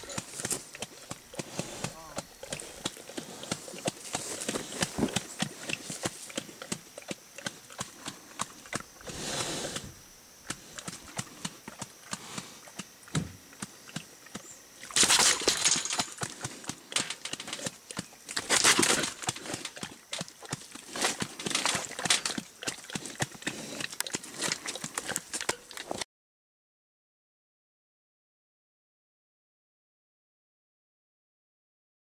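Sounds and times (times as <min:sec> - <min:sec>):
hooves tapping on wire cage: 0:00.0 - 0:09.8, 0:10.5 - 0:26.0.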